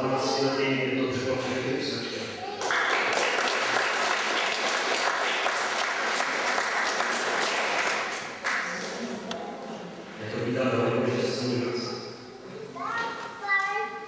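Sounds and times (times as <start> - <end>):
children applauding: 2.4 - 9.0.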